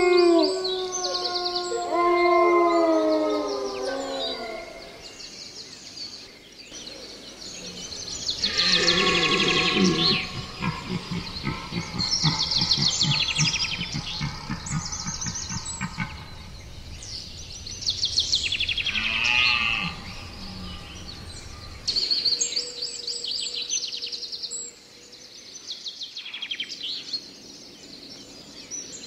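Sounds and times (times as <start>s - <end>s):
dog howling: 0.0s - 5.0s
birds singing high trills: 3.4s - 23.8s
rhythmic low rustling: 9.7s - 19.0s.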